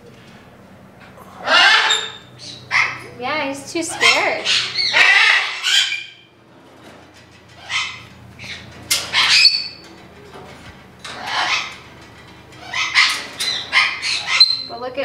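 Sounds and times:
parrot squawking: 1.4s - 3.1s, 3.9s - 6.3s, 7.6s - 9.8s, 11.1s - 11.9s, 12.6s - 14.8s.

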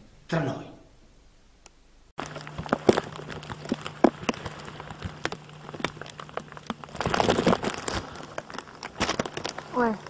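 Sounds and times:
steady low hum: 0.0s - 10.0s
crackling and rustling: 2.2s - 10.0s.

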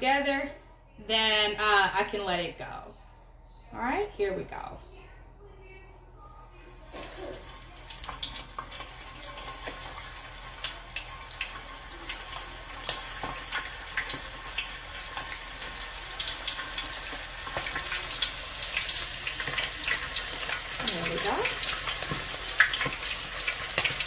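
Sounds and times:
deep-frying in hot oil: 6.7s - 24.0s.

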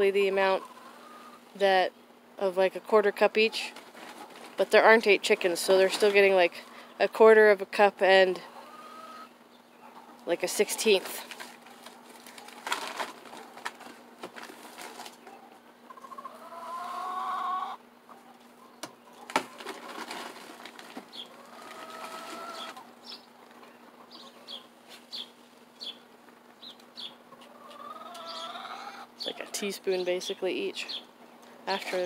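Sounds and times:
hens calling: 0.2s - 1.6s, 8.3s - 29.8s.

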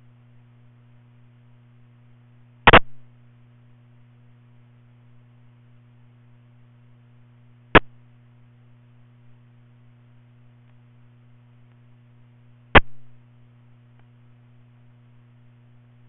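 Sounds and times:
steady low hum: 0.0s - 16.0s
static bursts: 2.6s - 3.0s, 12.8s - 13.1s.

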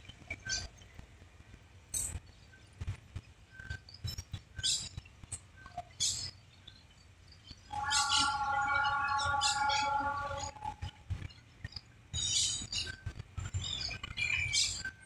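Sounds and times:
birds chirping: 5.6s - 11.6s
loud steady multi-note tone: 7.7s - 11.0s.

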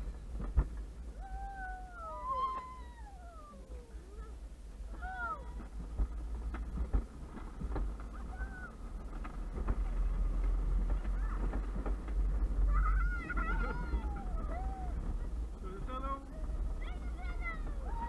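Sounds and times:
cart knocks and rattles: 0.0s - 1.4s, 4.8s - 18.0s
cart rolling over asphalt: 0.0s - 18.0s
person whooping and squealing: 1.2s - 4.4s.

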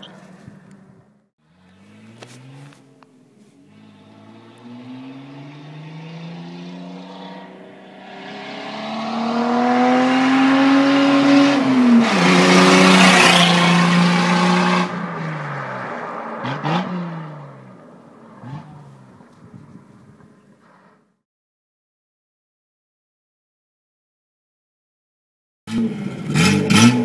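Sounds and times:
car engine accelerating past: 3.7s - 19.2s.

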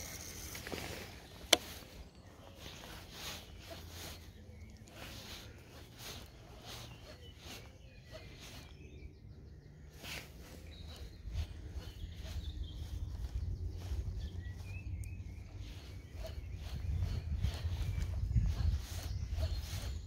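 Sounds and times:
bird chirps: 0.0s - 20.0s
low microphone rumble: 8.9s - 20.0s.

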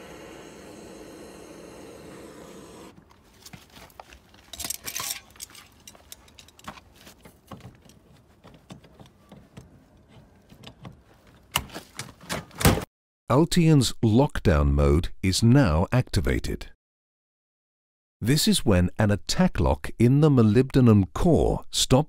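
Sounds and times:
blowtorch flame hissing: 0.0s - 3.0s.

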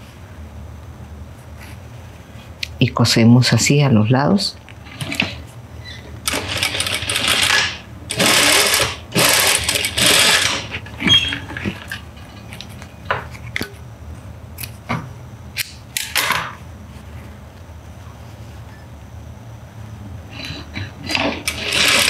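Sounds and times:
sewing machine stitching: 6.3s - 10.8s, 21.0s - 22.0s.

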